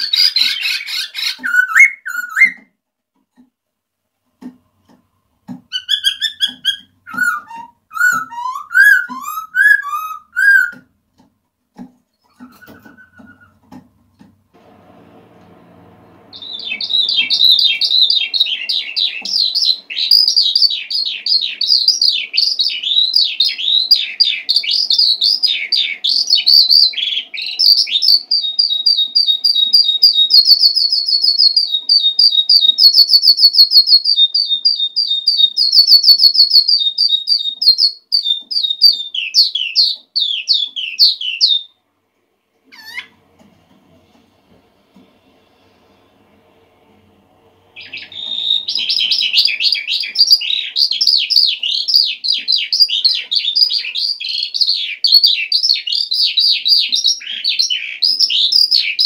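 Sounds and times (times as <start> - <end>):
skylark singing with trills: 16.3 - 41.7, 47.8 - 59.0.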